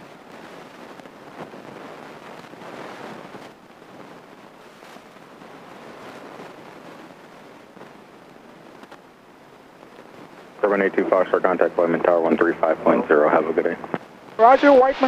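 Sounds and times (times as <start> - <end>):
airplane cabin noise: 10.6 - 15.0.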